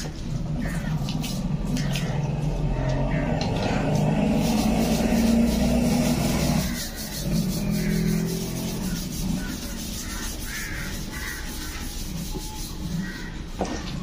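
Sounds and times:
scrubbing on wet bamboo tube: 0.0 - 14.0
vehicle engine running: 0.1 - 10.2.

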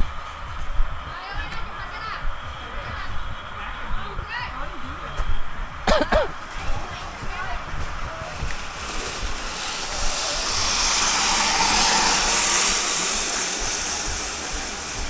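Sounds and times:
broad rushing hiss: 6.3 - 15.0.

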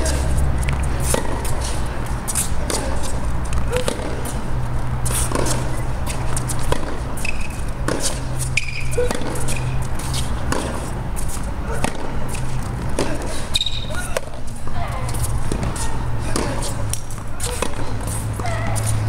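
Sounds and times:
racket hitting tennis ball: 0.0 - 19.0
steady low hum: 0.0 - 19.0
shoe squeaks: 5.0 - 19.0.

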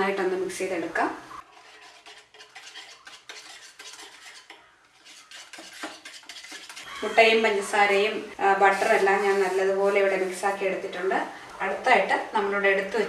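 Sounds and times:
whisk beating batter in a bowl: 1.4 - 7.9.

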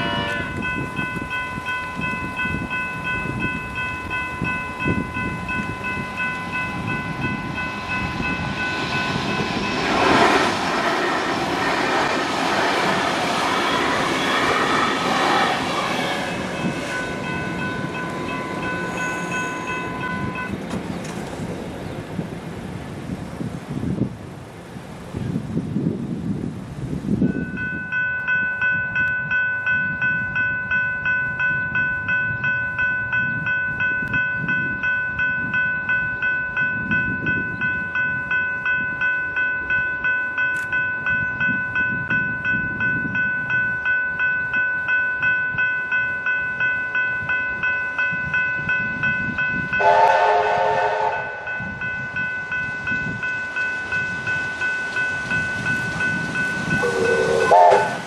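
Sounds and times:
steam whistle blast: 0.0 - 0.6, 49.8 - 51.5, 56.8 - 58.0
level crossing bell ringing: 0.0 - 9.2, 16.3 - 20.6, 27.4 - 58.0.

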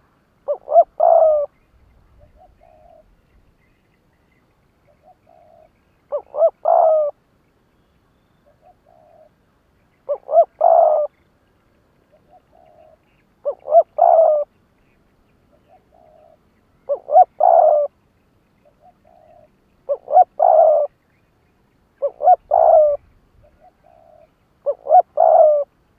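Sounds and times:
dove cooing: 0.4 - 1.6, 2.2 - 3.1, 4.8 - 7.2, 8.4 - 9.4, 10.0 - 11.2, 12.1 - 14.5, 15.5 - 18.0, 18.6 - 20.9, 22.0 - 25.8.

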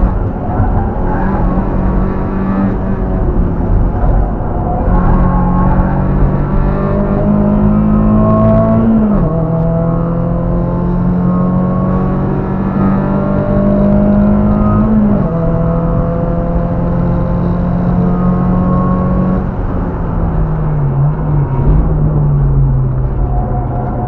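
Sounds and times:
car engine accelerating: 0.0 - 24.0
road noise: 0.0 - 24.0.

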